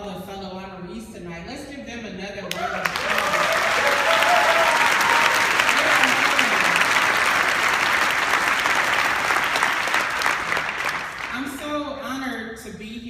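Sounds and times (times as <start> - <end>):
crowd applauding: 2.5 - 11.5.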